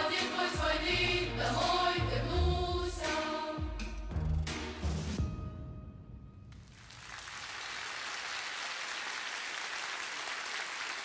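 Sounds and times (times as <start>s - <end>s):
music: 0.0s - 6.8s
audience applauding: 6.6s - 11.0s.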